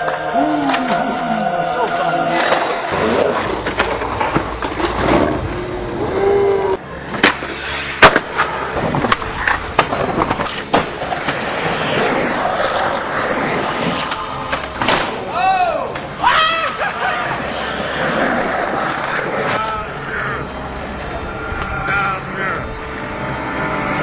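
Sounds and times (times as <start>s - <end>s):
skateboard wheels rolling on concrete: 0.0s - 1.0s, 1.8s - 24.0s.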